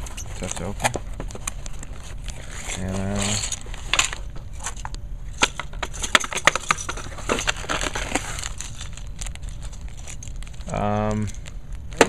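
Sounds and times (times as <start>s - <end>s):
plastic bags crinkling: 6.0s - 12.0s.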